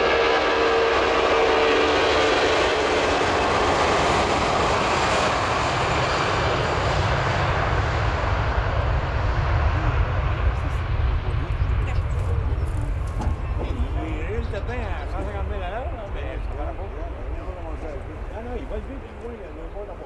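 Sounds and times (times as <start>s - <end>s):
jet engine roar: 0.0s - 20.0s
deep rumble: 5.4s - 19.8s.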